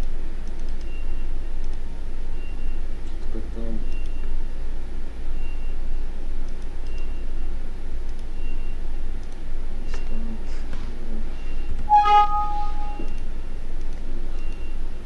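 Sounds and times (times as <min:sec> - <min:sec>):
short high beep: 0:11.9 - 0:13.2.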